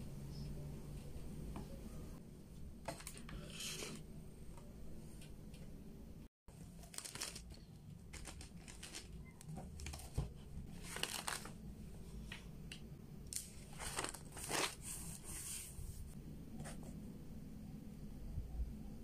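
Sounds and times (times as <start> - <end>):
notebook pages rustling: 6.8 - 11.6, 13.4 - 15.8.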